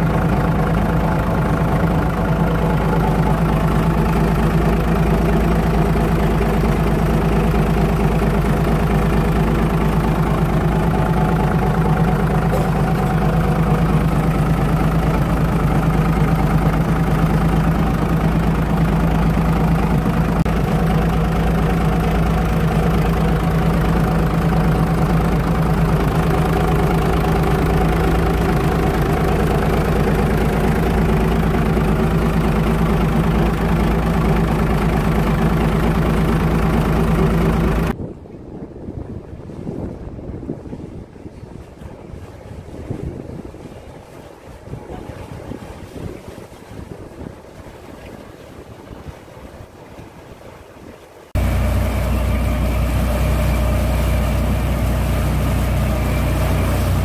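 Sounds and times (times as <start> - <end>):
marine diesel engine idling: 0.0 - 38.0, 51.4 - 57.0.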